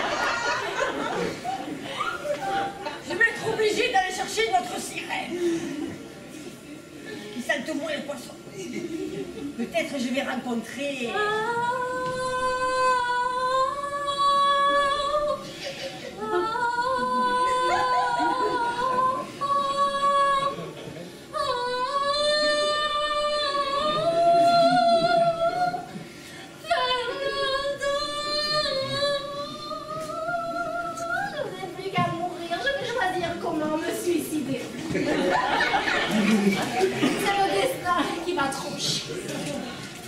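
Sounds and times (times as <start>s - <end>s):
woman singing long held notes: 16.2s - 20.6s.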